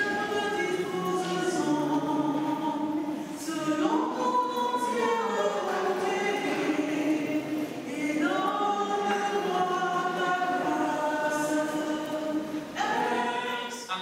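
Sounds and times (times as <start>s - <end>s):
choir singing a hymn: 0.0s - 14.0s.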